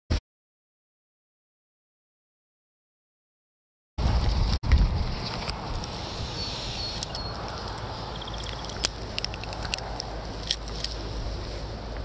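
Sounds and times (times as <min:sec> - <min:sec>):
wind buffeting microphone: 0:04.0 - 0:12.0
sharp clicks and rattles: 0:07.0 - 0:11.0.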